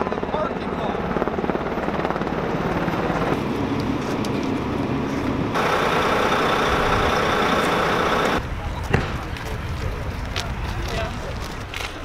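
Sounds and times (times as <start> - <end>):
helicopter rotor beating: 0.0 - 8.4
outdoor noise: 0.0 - 12.0
bus engine idling: 4.8 - 8.4.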